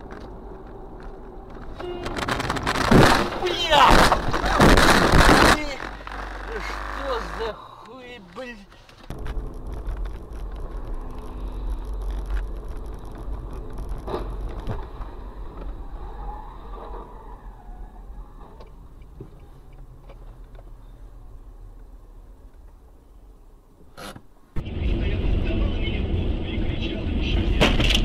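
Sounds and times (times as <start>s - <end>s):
car road and engine rumble: 0.0s - 28.0s
sharp crash bang: 1.9s - 6.0s.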